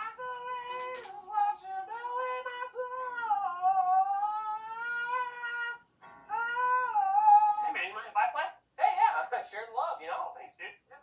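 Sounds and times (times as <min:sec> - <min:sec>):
man singing long high notes: 0:00.0 - 0:07.8.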